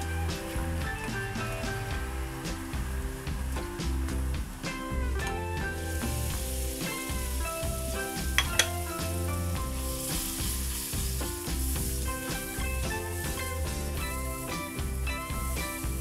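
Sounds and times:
background music: 0.0s - 16.0s
food sizzling in oil: 0.0s - 16.0s
stirring in a wok: 4.6s - 16.0s.

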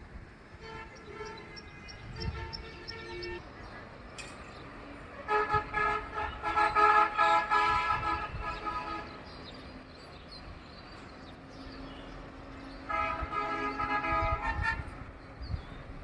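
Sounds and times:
street noise: 0.0s - 16.0s
vehicle horn honking: 0.6s - 3.4s, 5.3s - 9.2s, 12.9s - 15.0s.

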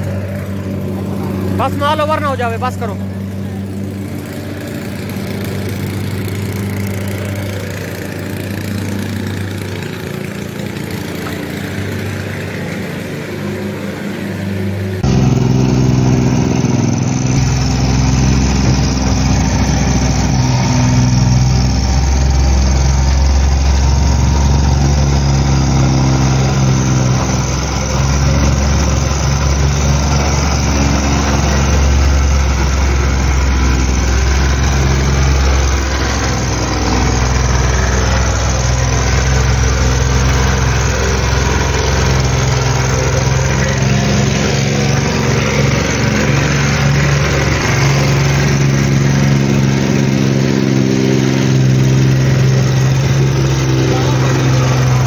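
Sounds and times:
engine running steadily: 0.0s - 55.0s
plate compactor running: 0.0s - 55.0s.

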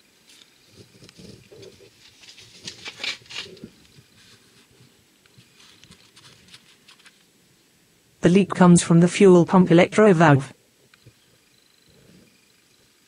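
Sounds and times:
faint rustling: 0.2s - 7.7s.

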